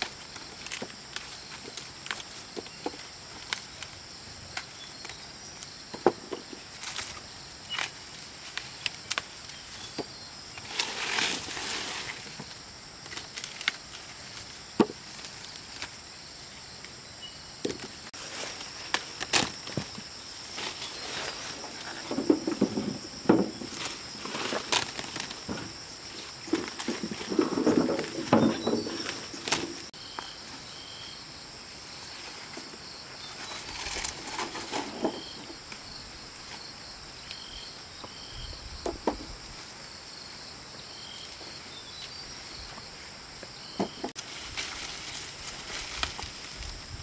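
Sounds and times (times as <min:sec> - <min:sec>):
corn stalks snapping: 0:00.0 - 0:05.3, 0:06.7 - 0:10.0, 0:13.0 - 0:16.0, 0:17.7 - 0:20.0, 0:23.7 - 0:25.6, 0:29.0 - 0:29.9, 0:44.2 - 0:46.7
rustling stalks and leaves: 0:00.0 - 0:47.0.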